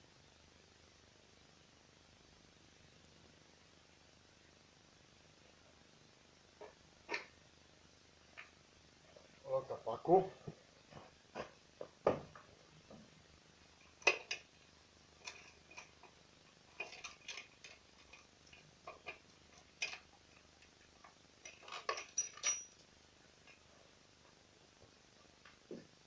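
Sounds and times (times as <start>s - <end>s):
chainsaw parts clicking and clinking: 13.8s - 14.5s, 15.2s - 22.9s.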